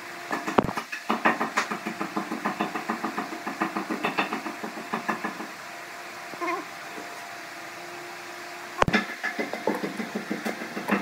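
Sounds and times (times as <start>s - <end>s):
rapid even knocking: 0.4s - 5.5s, 8.8s - 11.0s.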